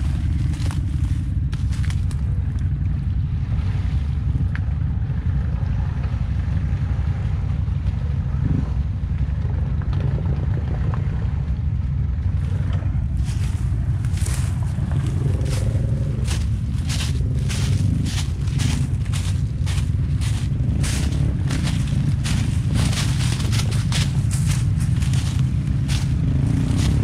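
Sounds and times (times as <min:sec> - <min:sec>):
dry leaves crunching: 0:00.0 - 0:02.3, 0:13.1 - 0:27.0
atv engine rumbling: 0:00.0 - 0:27.0.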